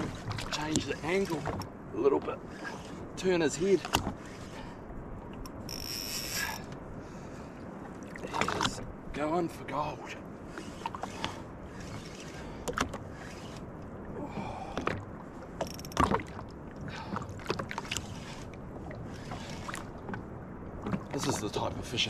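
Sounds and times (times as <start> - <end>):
calm water washing: 0.0 - 22.0
fishing reel clicking and knocking: 5.5 - 6.6, 15.6 - 16.0.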